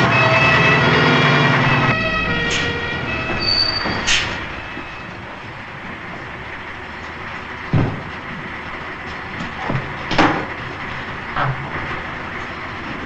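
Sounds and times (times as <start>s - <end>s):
high brake squeals: 0.0s - 5.4s
garbage truck running: 0.0s - 13.0s.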